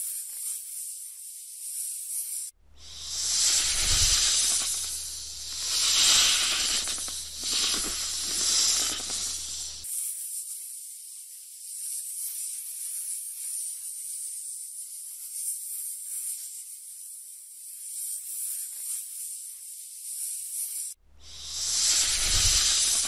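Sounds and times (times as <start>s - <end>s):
snake hissing: 2.7s - 9.9s, 21.2s - 23.0s
rushing noise: 2.8s - 9.8s, 21.2s - 23.0s.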